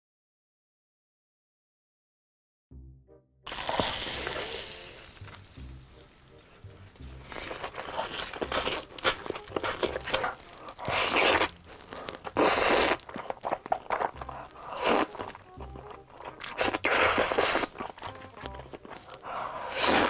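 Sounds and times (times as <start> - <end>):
soft background music: 2.7 - 20.0
slurping spaghetti: 3.5 - 5.4, 6.3 - 20.0
wet chewing and crunching: 3.5 - 20.0.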